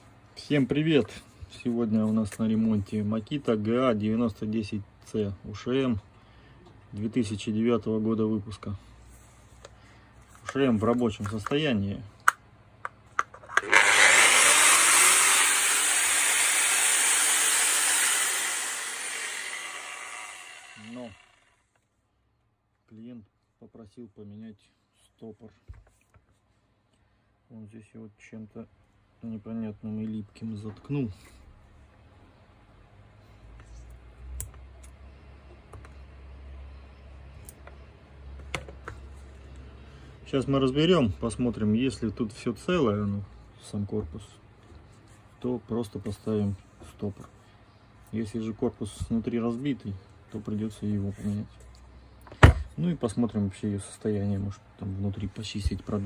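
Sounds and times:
angle grinder whirring: 0:13.5 - 0:21.6.

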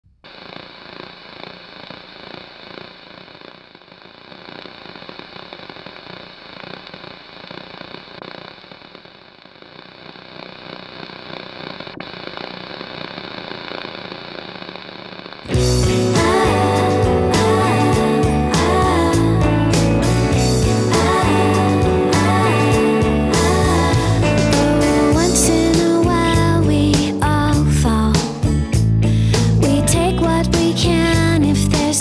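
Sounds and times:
crackling hissing noise: 0:00.1 - 0:29.9.

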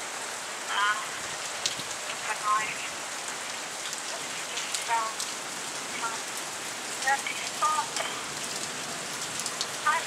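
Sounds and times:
steady rain falling: 0:00.0 - 0:10.0.

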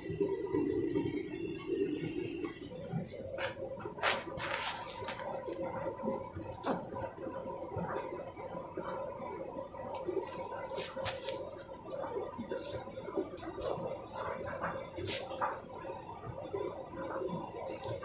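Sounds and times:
washing machine hum: 0:00.0 - 0:18.0
clothes squelching in drum: 0:03.4 - 0:05.6.

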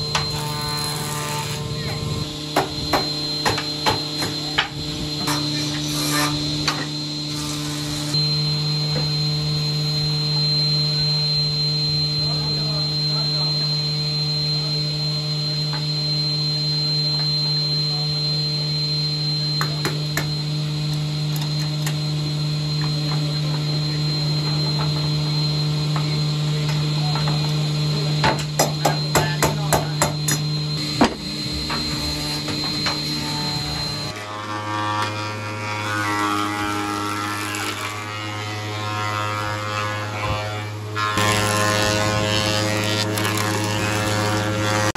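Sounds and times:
electric motor hum and whine: 0:00.0 - 0:44.9.

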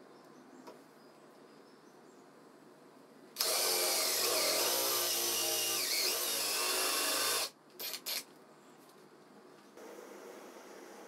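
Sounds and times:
cordless drill boring wood: 0:03.4 - 0:08.2.

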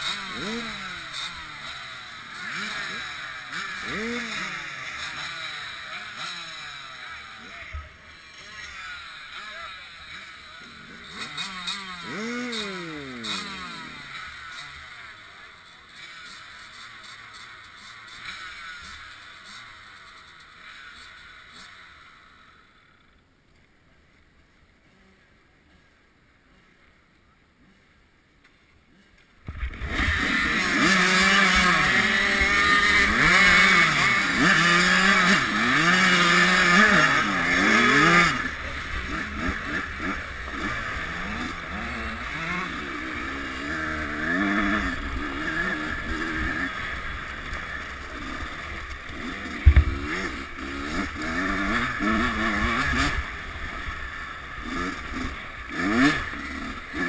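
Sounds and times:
dirt bike engines revving: 0:00.0 - 0:23.2, 0:24.8 - 0:57.0
sharp thump: 0:49.6 - 0:50.2.

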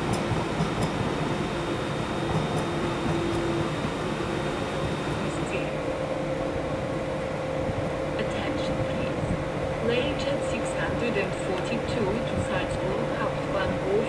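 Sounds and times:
locomotive cooling fans whirring: 0:00.0 - 0:14.0.

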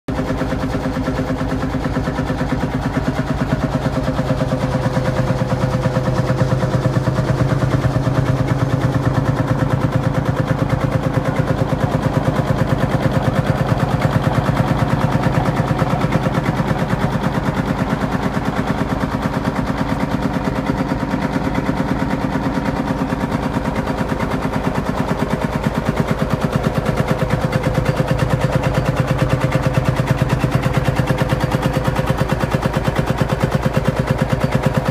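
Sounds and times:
tractor diesel engine popping: 0:00.1 - 0:34.9.

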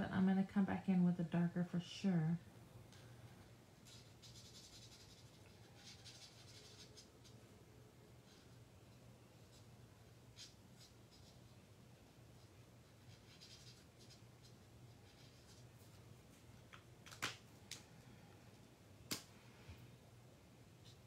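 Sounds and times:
marker colouring on cardstock: 0:03.8 - 0:07.5, 0:08.2 - 0:16.0.

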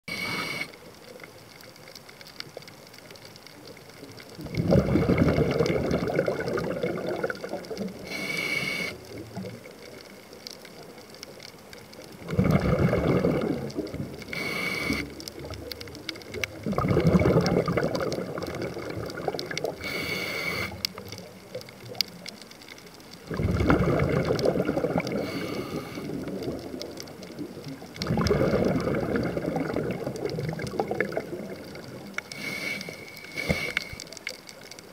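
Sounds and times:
hissing regulator inhale: 0:00.1 - 0:00.8, 0:08.0 - 0:09.2, 0:14.3 - 0:15.2, 0:19.8 - 0:21.0, 0:25.2 - 0:26.1, 0:32.3 - 0:34.1
exhaled bubbles rushing: 0:04.3 - 0:08.1, 0:12.1 - 0:14.4, 0:15.1 - 0:19.8, 0:23.2 - 0:32.3.

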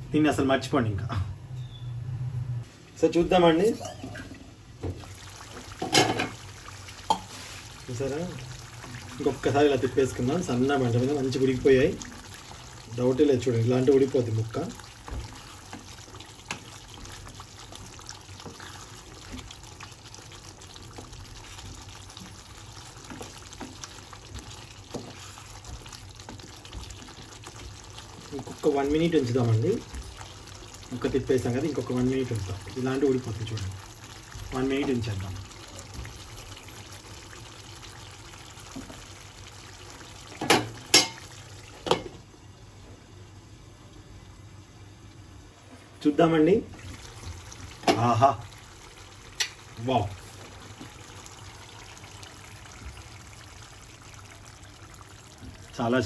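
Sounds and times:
gravy simmering and bubbling: 0:02.6 - 0:56.0
wooden spatula stirring: 0:04.8 - 0:40.4
glass lid clanking on pan: 0:40.4 - 0:41.2.

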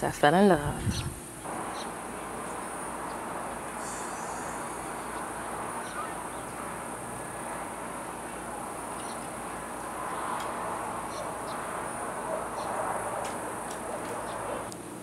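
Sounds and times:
even hiss: 0:00.6 - 0:14.7
faint high-pitched tone: 0:03.7 - 0:08.4.

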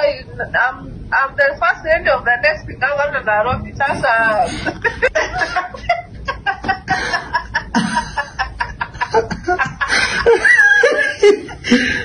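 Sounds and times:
cackling laughter: 0:04.8 - 0:11.9.

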